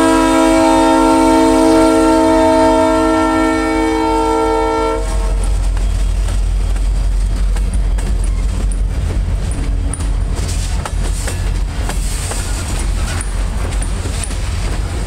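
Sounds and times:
steel wheels rumbling on rail: 0.0 - 15.0
wheels clacking over rail joints: 5.4 - 15.0.

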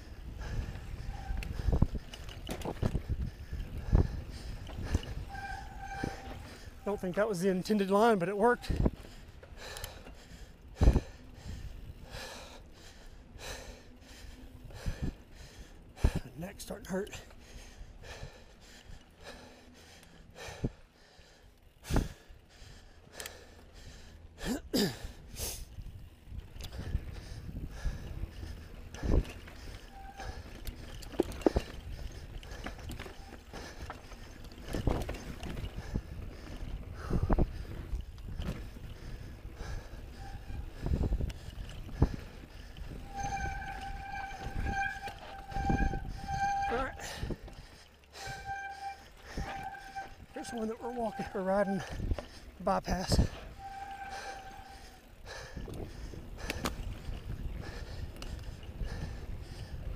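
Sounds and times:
person breathing heavily: 0.0 - 7.0, 8.6 - 16.4, 17.2 - 59.9
bike knocking and rattling over rocks: 28.1 - 38.9
bike tyres crunching over stones: 28.2 - 55.1.

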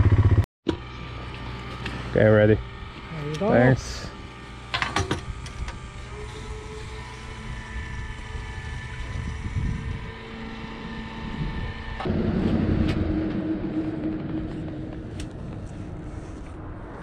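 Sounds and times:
electric fuel pump whining: 0.1 - 16.9
wind noise: 5.0 - 17.0
low rumble: 7.6 - 17.0.

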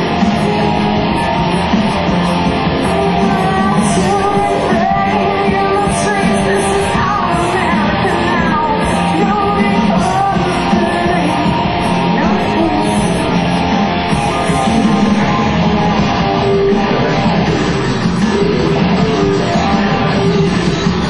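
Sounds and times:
rock band playing: 0.0 - 21.0
woman singing: 2.8 - 13.4.

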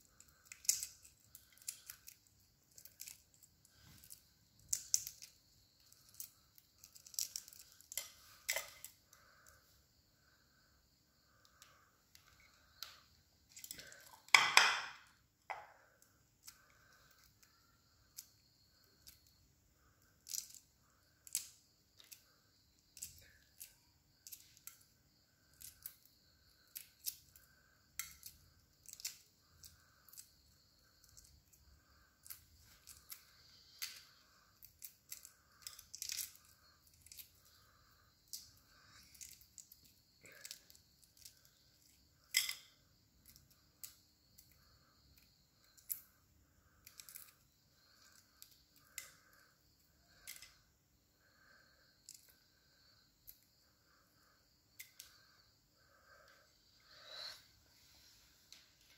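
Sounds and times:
eggshell cracking and peeling: 0.1 - 9.5, 21.2 - 22.3, 25.4 - 30.4, 34.6 - 46.0, 46.6 - 49.5.

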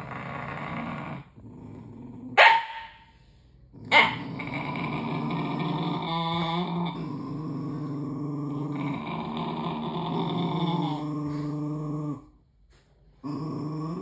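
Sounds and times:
dog growling: 0.0 - 2.4, 3.7 - 12.4, 13.2 - 14.0
dog barking sharply: 2.4 - 3.0.

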